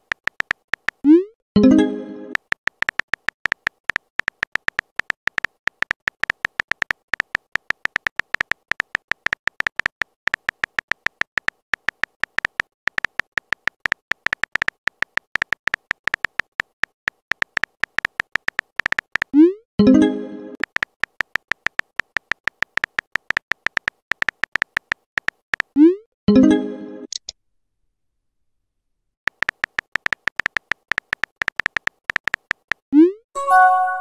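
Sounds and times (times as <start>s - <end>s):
phone keyboard typing clicks: 0.0s - 1.2s, 2.3s - 19.4s, 20.6s - 25.8s, 29.3s - 32.8s.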